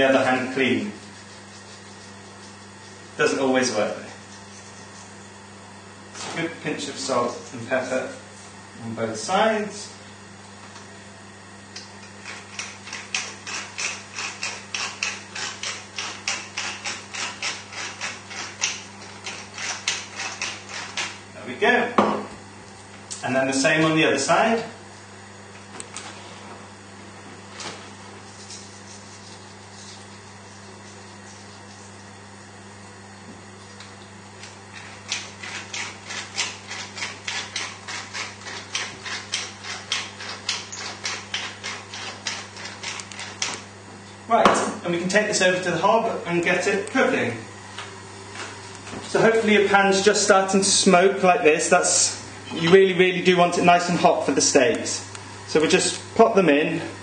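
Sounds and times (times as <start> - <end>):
seasoning mill grinding: 0.2 - 5.4, 12.0 - 21.3, 34.3 - 43.7.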